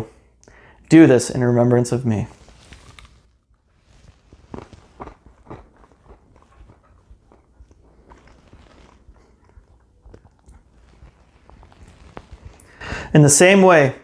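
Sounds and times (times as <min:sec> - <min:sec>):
person chewing bread: 0:02.3 - 0:13.1.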